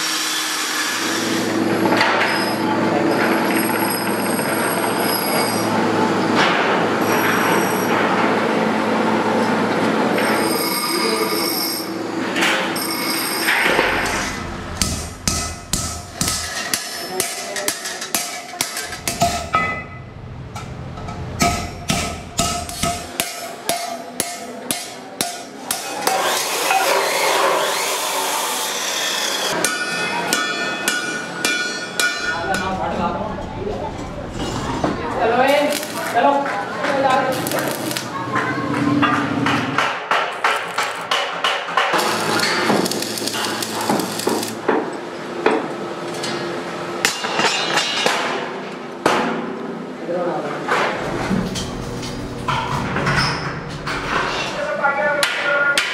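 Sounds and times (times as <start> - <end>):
hammer striking steel: 12.4 - 27.2, 29.5 - 33.0, 39.0 - 44.9, 47.0 - 49.4, 55.2 - 55.9
welding arc crackling: 13.3 - 17.4, 18.6 - 23.2, 34.6 - 38.3, 40.4 - 41.2, 41.9 - 44.7
metallic knocks on steel: 14.8 - 25.4.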